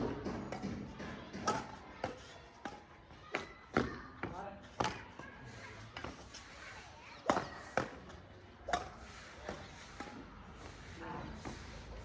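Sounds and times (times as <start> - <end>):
rackets hitting shuttlecock: 0.0 - 5.2, 7.2 - 10.3.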